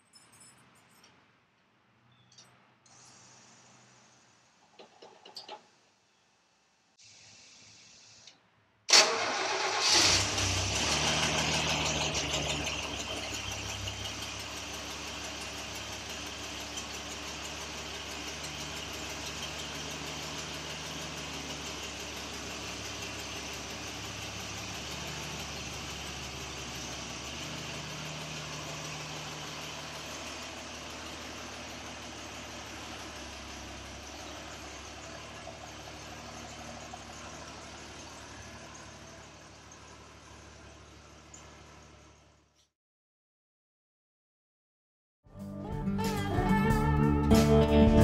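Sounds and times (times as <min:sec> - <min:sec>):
car engine starting and idling: 0:08.9 - 0:42.5.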